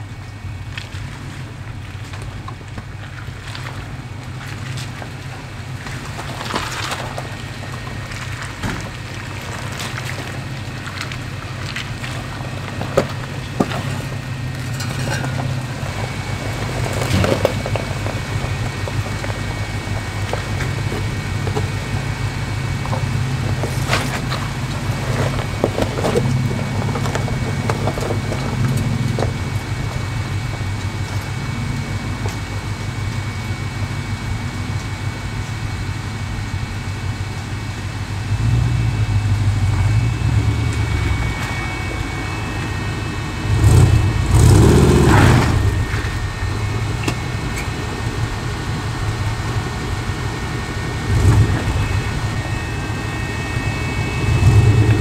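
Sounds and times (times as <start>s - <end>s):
rocks crunching under tyres: 0.0s - 55.0s
truck engine running: 0.0s - 55.0s
engine revving: 5.9s - 32.4s, 38.2s - 55.0s.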